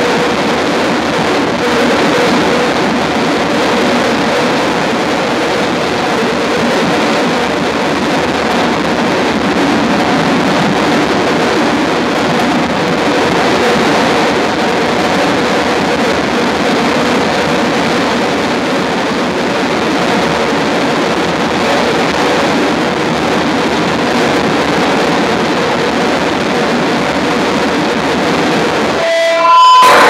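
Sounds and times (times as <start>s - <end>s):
loud electronic synthesizer noise: 0.0s - 19.4s, 26.4s - 30.0s
faint held tones: 29.0s - 30.0s.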